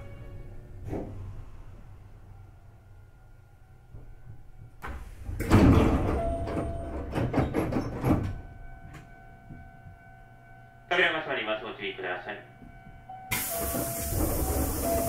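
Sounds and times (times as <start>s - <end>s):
train doors sliding open: 0.0s - 2.8s, 3.8s - 9.7s, 13.3s - 15.0s
faint train hum: 0.0s - 15.0s
air hiss: 13.3s - 15.0s.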